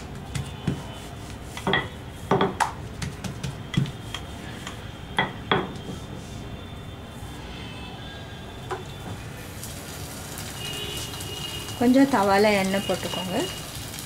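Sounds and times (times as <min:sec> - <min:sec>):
rolling pin clacking on countertop: 0:01.6 - 0:04.8.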